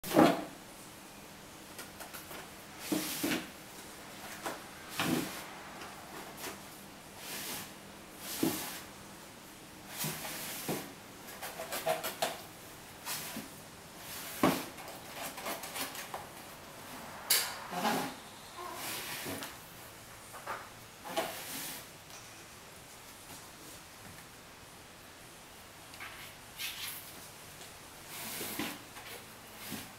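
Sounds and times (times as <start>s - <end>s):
cardboard boxes scraping on tile: 2.8s - 9.0s, 9.9s - 12.4s, 13.0s - 19.6s, 20.4s - 21.9s, 28.0s - 29.9s.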